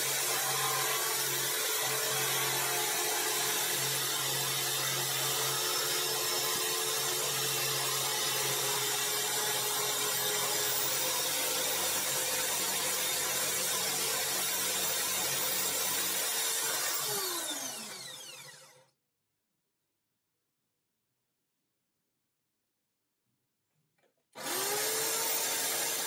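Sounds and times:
grinder stone grinding drill bit: 0.0s - 18.8s, 24.4s - 26.0s.

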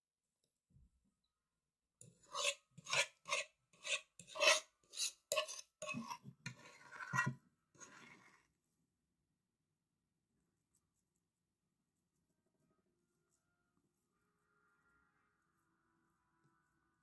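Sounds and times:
utensil scraping mashed potatoes: 2.0s - 8.5s.

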